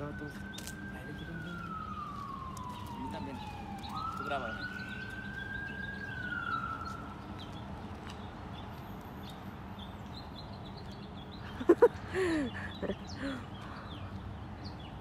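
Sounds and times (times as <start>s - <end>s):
emergency vehicle siren: 0.0s - 9.2s
traffic hum: 0.0s - 15.0s.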